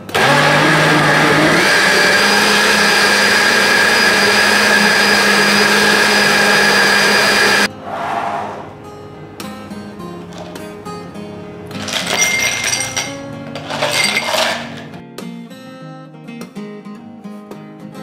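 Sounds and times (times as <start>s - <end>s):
electric blender running: 0.0s - 7.7s.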